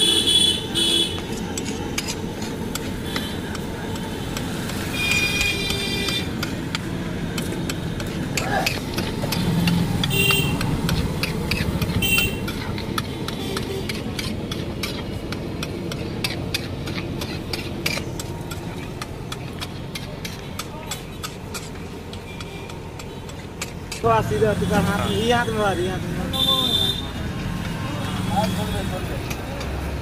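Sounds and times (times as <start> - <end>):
vehicle horns: 0.0 - 1.4, 3.0 - 3.4, 4.8 - 6.4, 9.4 - 10.9, 12.0 - 12.7, 13.3 - 14.0, 24.1 - 27.2, 27.8 - 29.2
traffic rumble: 0.0 - 30.0.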